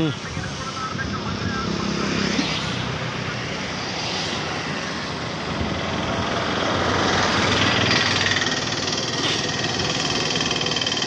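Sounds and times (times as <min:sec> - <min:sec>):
diesel engine idling: 0:02.9 - 0:11.0.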